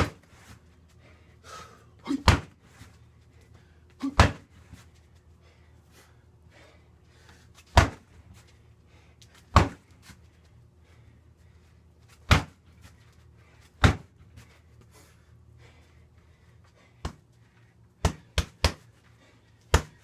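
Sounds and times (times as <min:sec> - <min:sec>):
hits on punching bag: 0:02.2 - 0:02.6, 0:04.1 - 0:04.5, 0:07.7 - 0:08.0, 0:09.5 - 0:09.8, 0:12.3 - 0:12.6.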